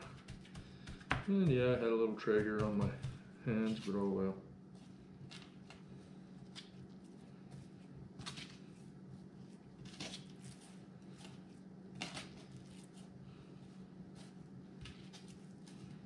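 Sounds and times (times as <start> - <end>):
hands patting raw fish fillets: 0.0 - 3.9
steady low hum: 0.0 - 16.0.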